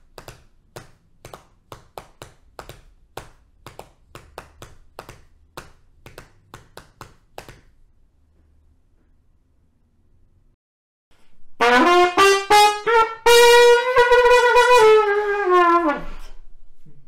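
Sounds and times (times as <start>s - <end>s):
trumpet playing: 11.6s - 16.3s.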